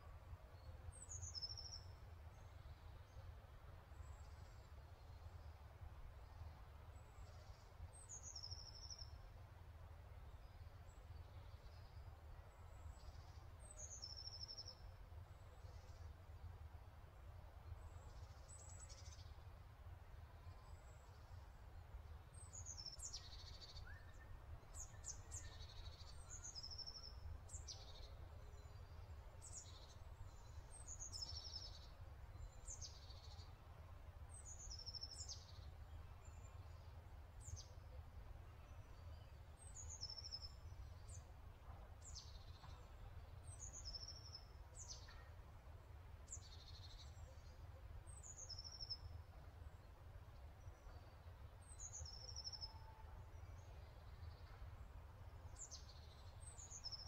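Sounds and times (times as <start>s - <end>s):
small bird chirping faintly: 20.2s - 57.0s.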